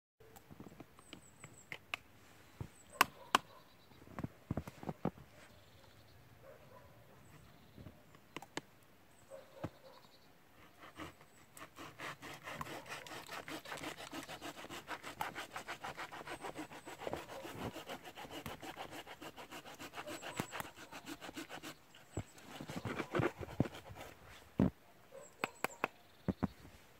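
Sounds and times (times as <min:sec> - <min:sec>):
hand saw cutting wood: 0:10.6 - 0:24.2.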